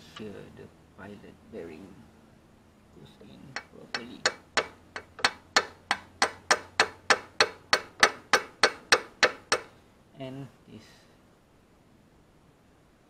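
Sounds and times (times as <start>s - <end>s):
hammer tapping metal: 3.5s - 9.7s.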